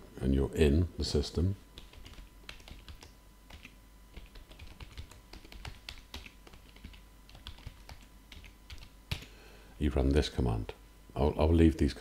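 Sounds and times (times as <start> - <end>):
keyboard typing: 1.8 - 9.3.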